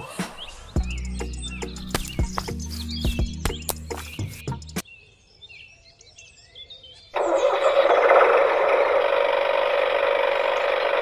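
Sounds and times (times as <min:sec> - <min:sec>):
small motor running: 0:07.2 - 0:11.0.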